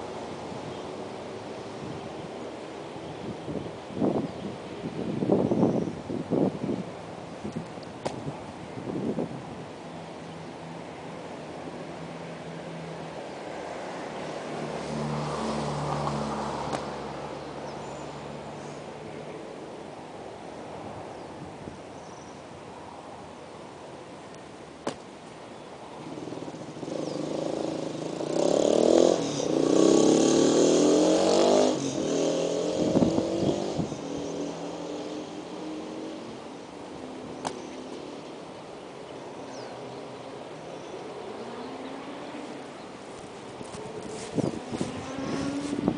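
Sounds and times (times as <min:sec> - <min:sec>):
vehicle engine passing by: 0:11.6 - 0:19.5, 0:26.0 - 0:38.4, 0:40.8 - 0:45.9.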